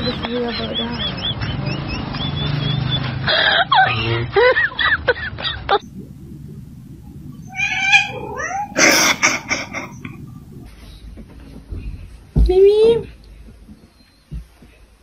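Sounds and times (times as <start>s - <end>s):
cat meowing: 7.4s - 10.0s.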